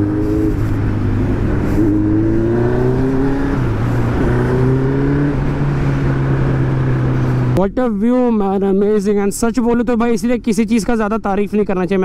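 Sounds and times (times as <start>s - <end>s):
motorcycle engine accelerating: 0.0s - 7.6s.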